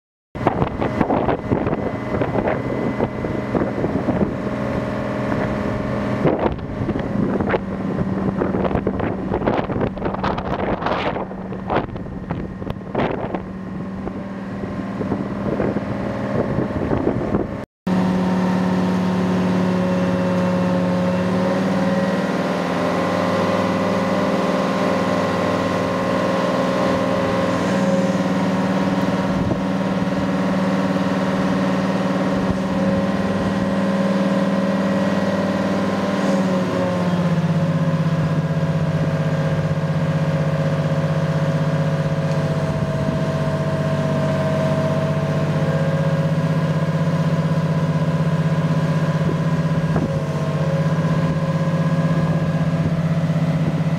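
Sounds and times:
wind buffeting microphone: 0:00.4 - 0:17.6, 0:25.7 - 0:33.9, 0:42.0 - 0:45.1, 0:49.0 - 0:53.9
diesel engine running steadily: 0:00.4 - 0:53.9.

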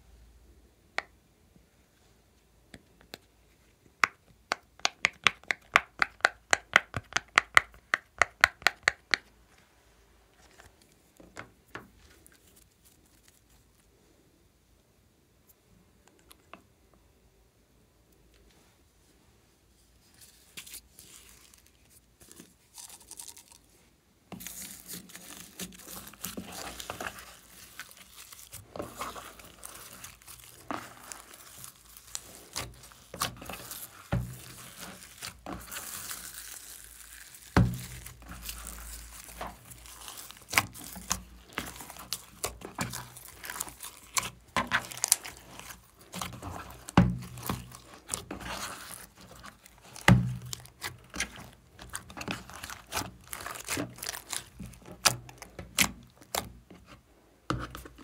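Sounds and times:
hands squishing slime: 0:04.0 - 0:09.3, 0:20.2 - 0:56.9.

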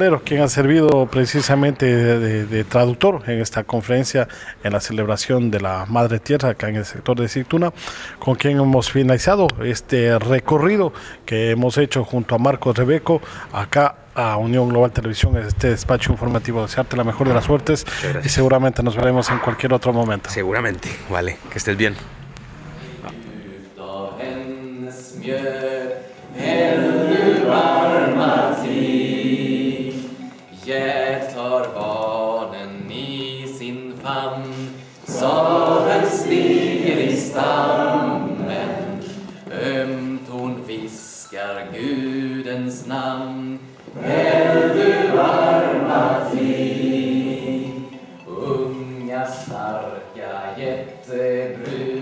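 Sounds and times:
group of people singing: 0:22.6 - 0:52.0.

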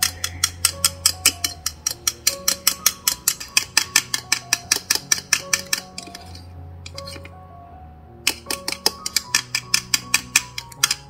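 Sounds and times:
whisk clicking against glass bowl: 0:00.0 - 0:06.2.

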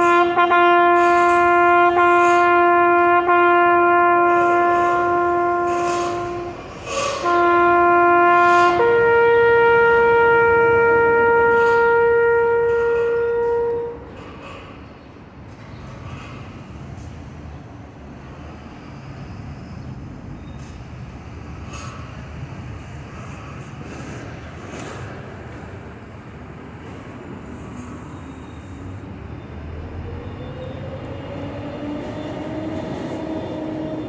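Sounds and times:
city street noise: 0:00.0 - 0:34.0
bugle call long notes: 0:07.2 - 0:14.1.

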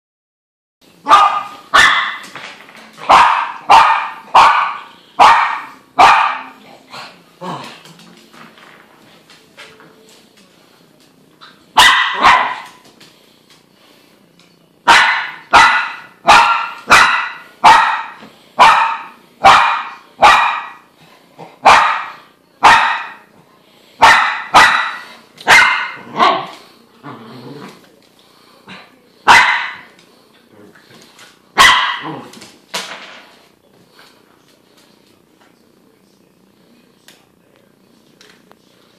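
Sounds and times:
dog barking: 0:01.1 - 0:02.2, 0:03.0 - 0:06.6, 0:11.8 - 0:12.8, 0:14.9 - 0:20.8, 0:21.6 - 0:23.3, 0:24.0 - 0:26.6, 0:29.3 - 0:29.9, 0:31.6 - 0:32.2.

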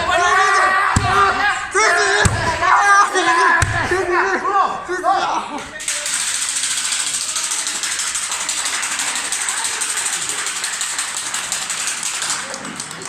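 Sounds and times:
ratchet noisemaker clattering: 0:05.8 - 0:11.8.

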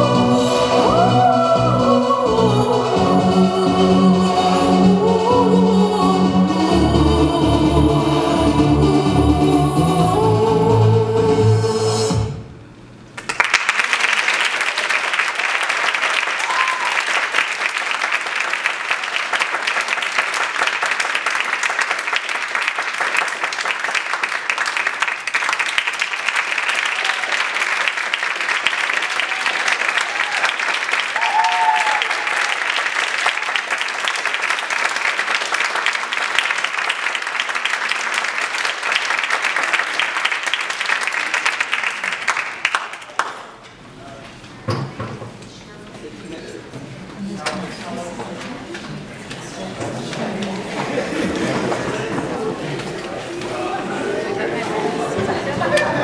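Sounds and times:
audience applauding: 0:13.2 - 0:43.6.

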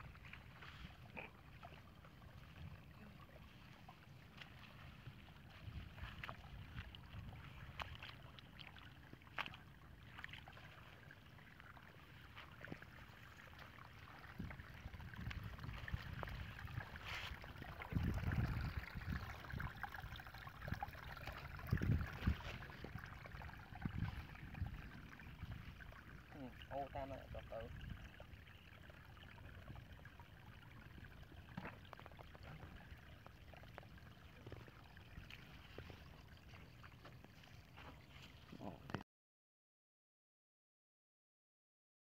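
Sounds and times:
water trickling and splashing: 0:00.0 - 0:39.0
wind rumbling on microphone: 0:02.2 - 0:08.2, 0:14.1 - 0:28.6.

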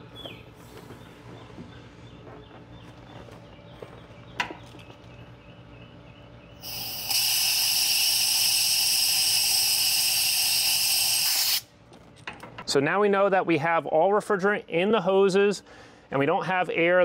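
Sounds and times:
refrigerant hissing from hoses: 0:06.6 - 0:11.7.

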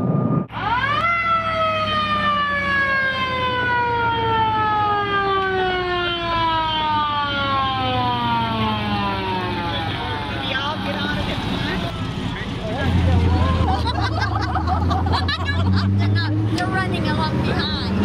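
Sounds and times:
fire truck siren winding down: 0:00.0 - 0:13.7.

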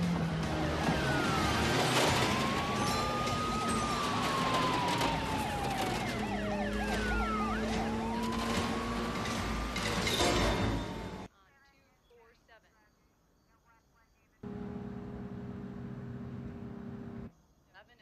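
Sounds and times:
police siren wail: 0:00.0 - 0:10.1
police siren yelp: 0:00.5 - 0:09.5
car engine rumble: 0:14.4 - 0:17.3.

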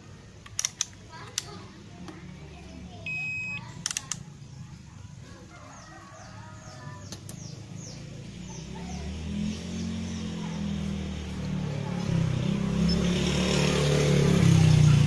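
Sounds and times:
sharp clicks: 0:00.4 - 0:02.2, 0:03.8 - 0:04.4.

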